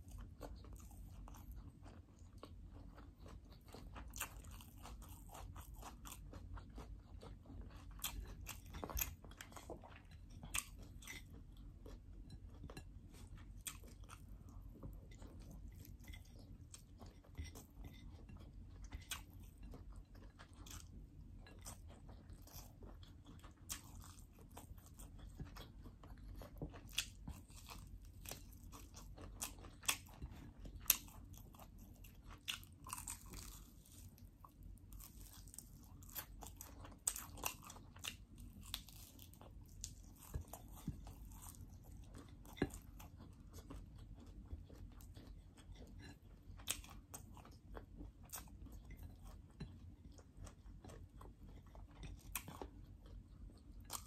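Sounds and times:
person chewing crunchy food: 0.0 - 54.0.

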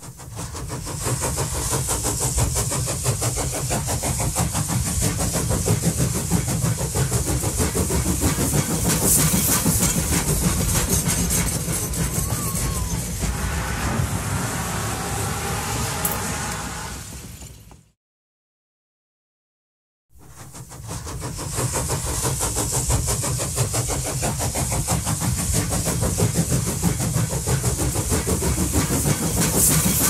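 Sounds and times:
train wheels clattering: 0.0 - 13.8, 20.3 - 30.0
low train rumble: 0.0 - 18.0, 20.2 - 30.0.

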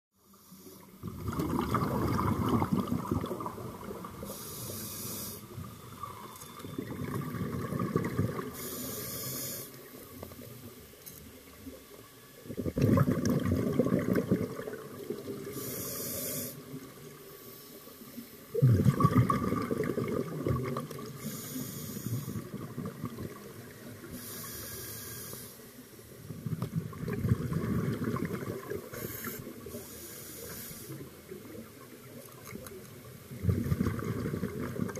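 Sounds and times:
regulator inhale hiss: 0.2 - 1.0, 4.1 - 6.4, 8.5 - 10.2, 15.4 - 18.5, 21.0 - 22.6, 24.0 - 26.0, 28.8 - 31.4
exhale bubbling underwater: 1.0 - 9.3, 12.4 - 17.2, 18.5 - 24.4, 26.2 - 29.8, 33.3 - 34.9.

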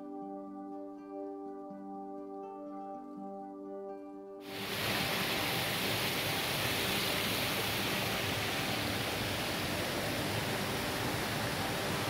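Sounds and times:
stream running over rocks: 4.4 - 12.0.

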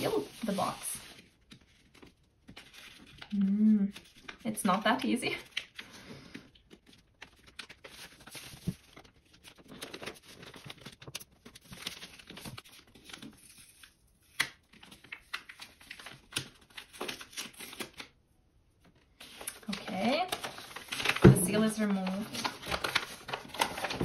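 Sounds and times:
wrapping paper crinkling: 0.0 - 18.2, 18.8 - 24.0.

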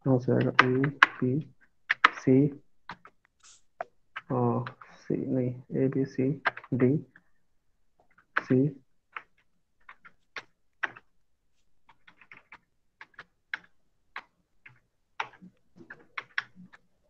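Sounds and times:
computer keyboard typing: 0.3 - 3.2, 6.0 - 7.2, 8.0 - 11.1, 11.8 - 16.9.

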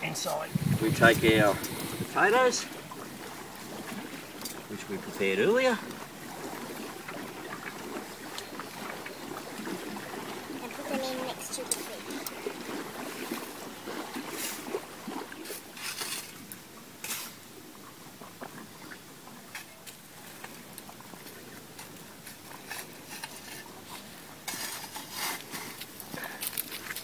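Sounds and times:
metal shovel scraping sand: 15.4 - 17.4, 22.6 - 26.0.

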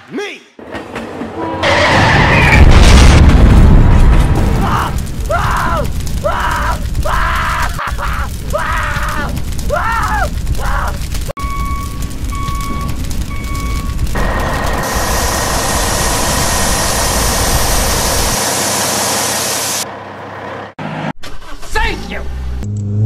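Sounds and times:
explosion boom: 1.6 - 7.2
wailing cries: 4.7 - 11.0
short beeps: 11.4 - 14.0
water spraying hiss: 13.1 - 19.8.

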